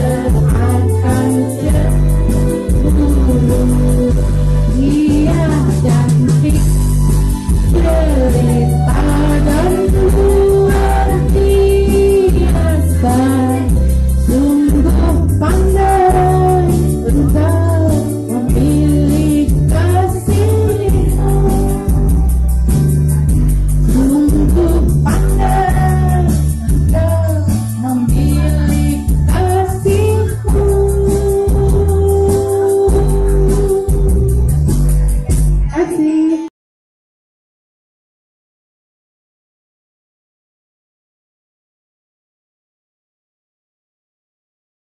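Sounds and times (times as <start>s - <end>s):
women singing karaoke: 0.0s - 35.0s, 35.6s - 36.5s
backing track with bass line: 0.0s - 36.4s.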